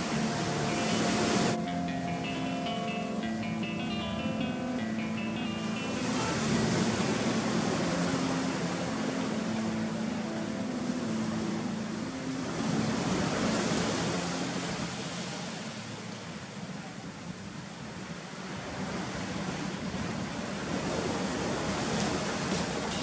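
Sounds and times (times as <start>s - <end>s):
waves washing against rocky shore: 17.4s - 23.0s.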